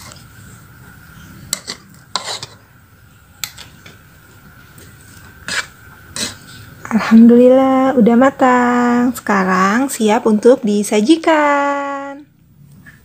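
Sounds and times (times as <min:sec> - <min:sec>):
rice paddle scraping metal pot: 0:01.4 - 0:02.7, 0:05.4 - 0:06.6.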